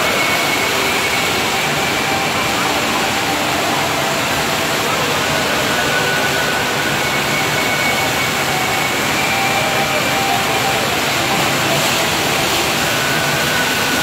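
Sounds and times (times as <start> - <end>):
water pouring and splashing into pool: 0.0 - 14.0.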